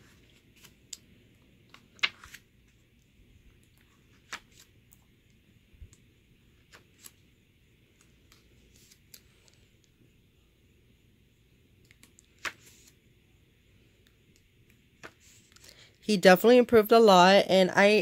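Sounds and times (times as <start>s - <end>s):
glossy pages turning: 1.7s - 2.8s, 3.9s - 4.8s, 6.6s - 7.2s, 11.9s - 13.0s.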